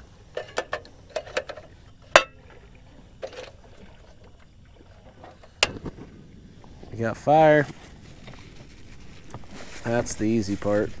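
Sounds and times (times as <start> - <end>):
camp stove clicks and knocks: 0.3 - 2.4, 5.5 - 5.9.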